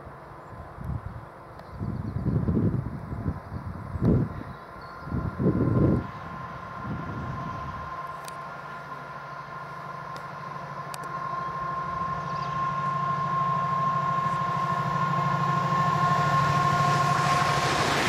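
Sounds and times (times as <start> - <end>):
diesel locomotive engine drone: 0.0 - 18.0
high whine: 4.0 - 18.0.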